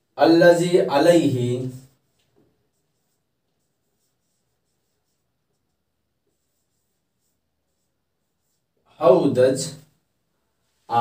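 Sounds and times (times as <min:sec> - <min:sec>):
marker squeaking on whiteboard: 0:01.7 - 0:08.8.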